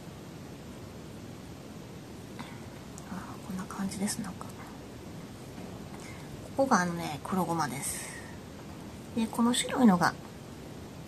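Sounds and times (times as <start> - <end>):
steady microphone hiss: 0.0 - 11.0.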